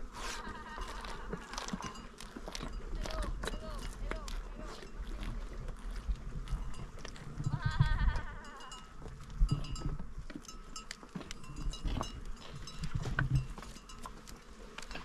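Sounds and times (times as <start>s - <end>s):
livestock bleating: 0.3s - 1.7s, 7.4s - 9.0s.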